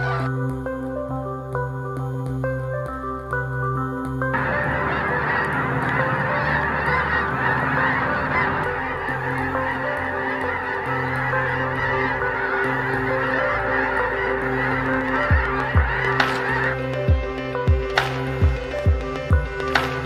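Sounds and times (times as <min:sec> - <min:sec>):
flock of geese honking: 0:00.0 - 0:00.3, 0:04.3 - 0:20.0.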